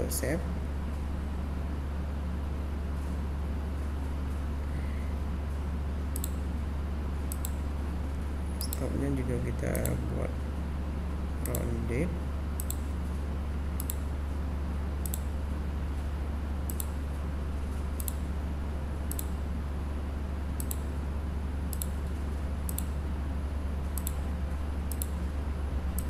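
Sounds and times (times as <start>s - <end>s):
low electrical hum: 0.0s - 26.0s
computer mouse clicking: 6.1s - 6.4s, 7.3s - 7.6s, 12.6s - 12.8s, 13.8s - 14.0s, 15.0s - 15.3s, 16.7s - 17.0s, 18.0s - 18.2s, 19.1s - 19.4s, 20.6s - 20.9s, 21.7s - 22.0s, 22.7s - 23.0s, 23.9s - 24.2s, 24.9s - 25.2s.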